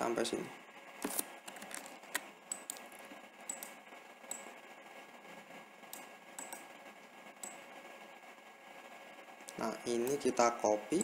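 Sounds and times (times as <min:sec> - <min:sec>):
computer mouse clicks: 0:01.1 - 0:04.5, 0:05.9 - 0:06.7.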